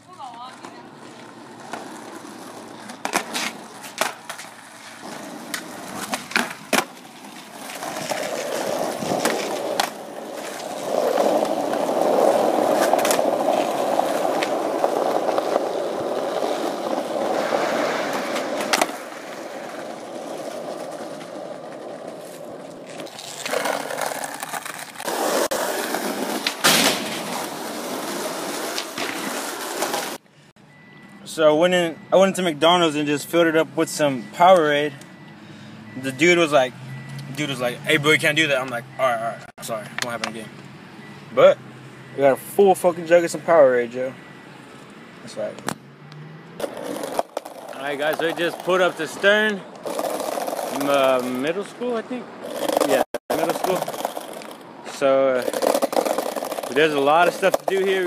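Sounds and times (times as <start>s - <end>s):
skateboard wheels rolling on asphalt: 0.0s - 30.2s, 42.6s - 58.0s
skateboards clacking on ground: 0.0s - 30.2s, 46.6s - 58.0s.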